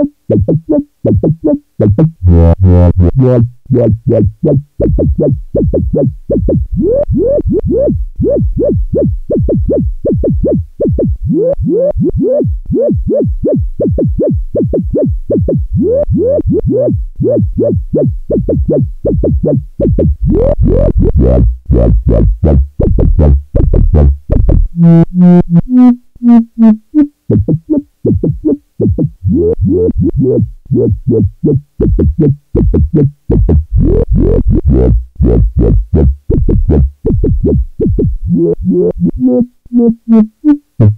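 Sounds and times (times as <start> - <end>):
filtered sawtooth synth sequence: 0.0 - 32.2.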